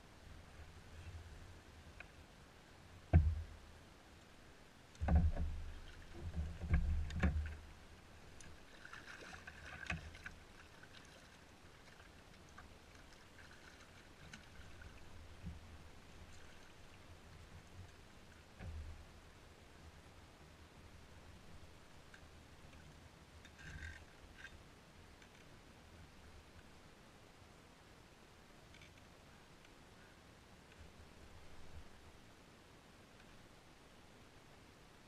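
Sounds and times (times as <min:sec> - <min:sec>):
paddle knocking on kayak hull: 0:03.1 - 0:03.5.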